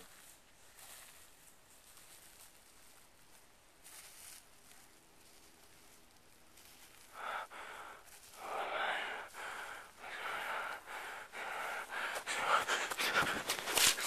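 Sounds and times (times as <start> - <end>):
person gasping breaths: 7.0 - 14.0.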